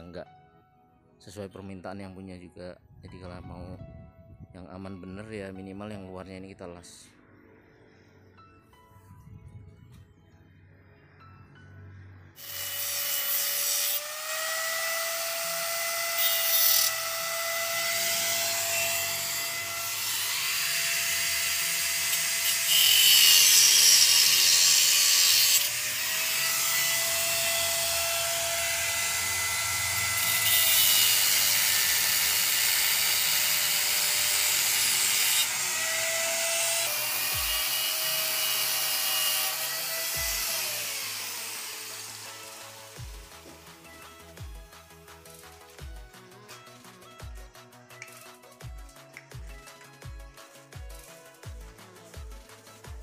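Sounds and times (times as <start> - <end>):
angle grinder cutting steel: 12.4 - 44.0.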